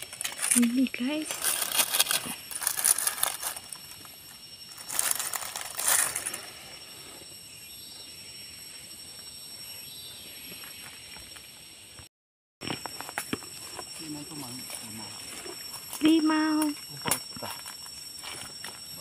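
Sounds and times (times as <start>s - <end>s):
peppercorns and dry leaves rattling: 0.0s - 6.8s
low outdoor background: 0.0s - 19.0s.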